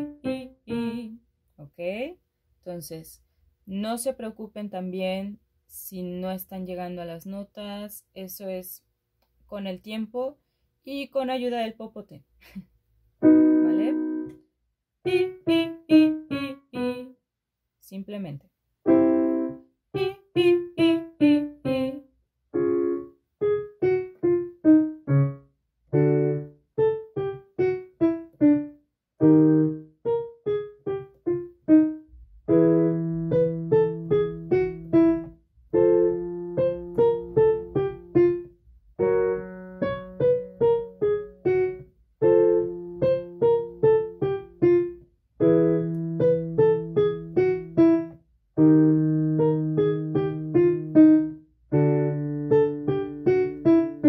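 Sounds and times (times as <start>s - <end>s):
piano chord: 13.2s - 14.4s, 18.9s - 54.0s.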